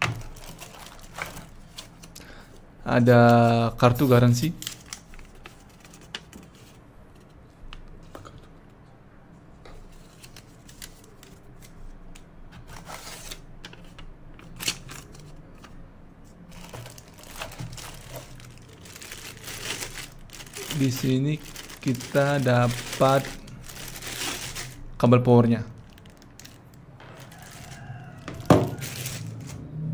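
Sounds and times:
paper rustling: 0.0s - 2.4s, 3.2s - 7.4s, 12.6s - 24.9s, 25.7s - 29.6s
plastic bag crinkling: 0.0s - 2.4s, 3.4s - 6.3s, 16.5s - 29.6s.

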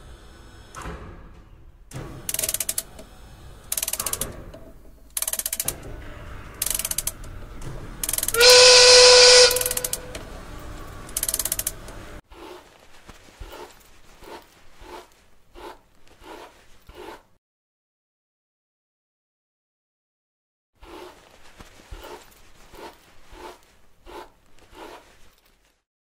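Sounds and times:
ratcheting gear clatter: 2.2s - 3.0s, 3.7s - 8.6s, 9.4s - 12.0s
steam whistle with hiss: 8.3s - 10.2s.

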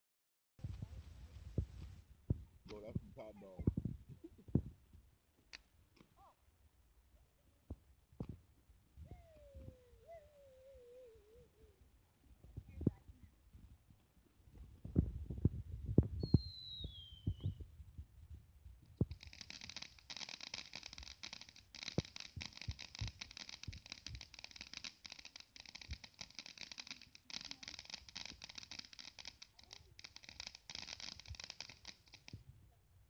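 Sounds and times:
firework fountain crackling hiss: 19.0s - 32.4s.

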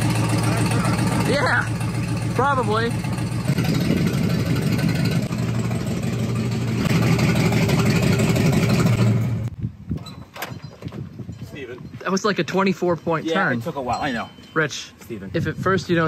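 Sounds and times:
pickup truck engine running: 0.0s - 9.5s.

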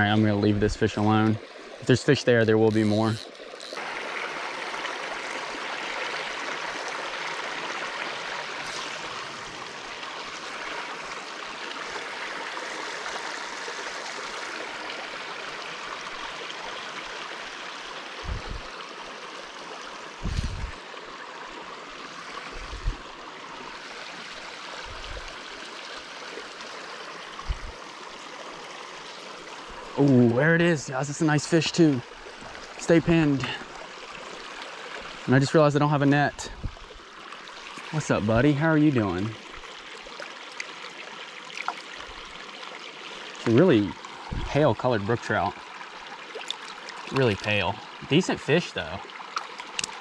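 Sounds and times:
creek water rushing: 0.0s - 50.0s
short low bumps: 18.2s - 18.7s.

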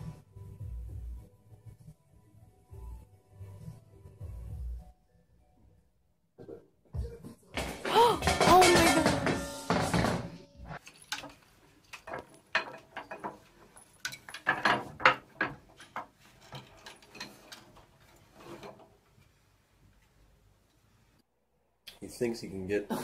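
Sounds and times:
wooden rungs knocking: 7.6s - 17.8s.

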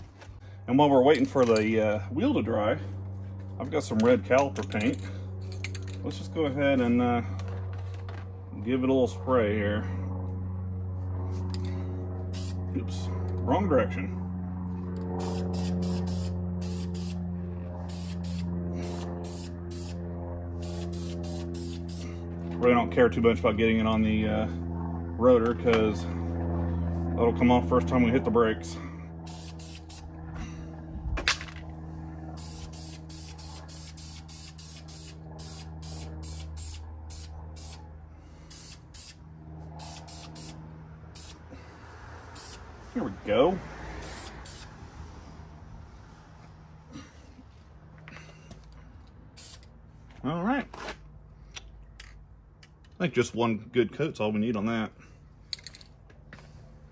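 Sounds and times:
steady low hum: 0.0s - 56.9s
aerosol spray bursts: 15.2s - 17.2s, 20.6s - 22.0s, 29.3s - 30.0s, 32.4s - 37.8s.

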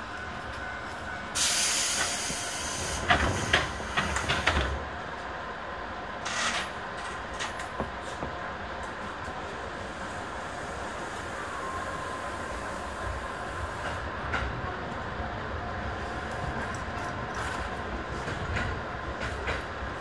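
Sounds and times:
train equipment hum: 0.0s - 20.0s
compressed air hiss: 1.4s - 4.2s.

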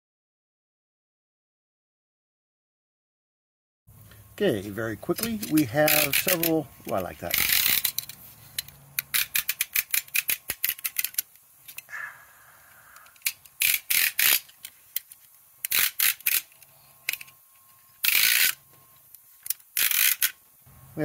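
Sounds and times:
knife blade scraping: 5.1s - 11.9s, 13.1s - 14.7s
utility knife ratcheting clicks: 5.1s - 11.9s, 12.7s - 17.4s, 18.0s - 20.4s.

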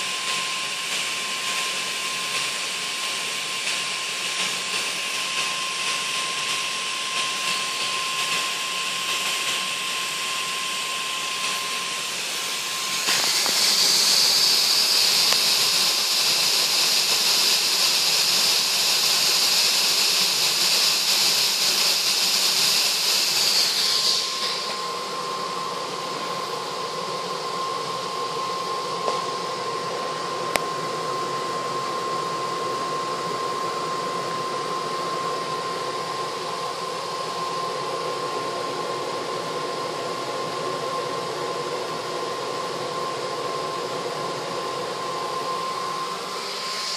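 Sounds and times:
gas burner hissing: 0.0s - 46.9s
thin steady whine: 0.0s - 46.9s.

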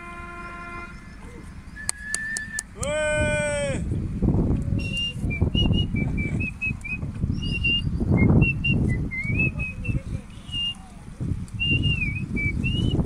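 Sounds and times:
low uneven rumble: 0.0s - 13.0s
high whistled notes: 0.1s - 2.8s.

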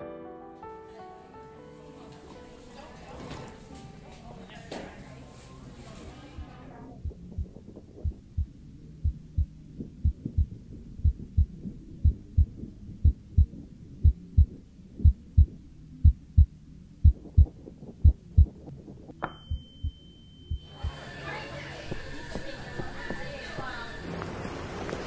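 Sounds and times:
heartbeat thumps: 6.4s - 21.0s, 21.9s - 23.7s
steady high tone: 19.2s - 23.9s.

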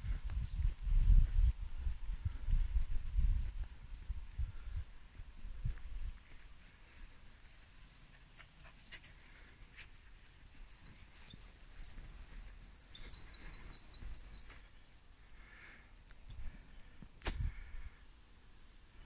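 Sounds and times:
songbird singing: 3.8s - 4.9s, 10.3s - 17.0s.

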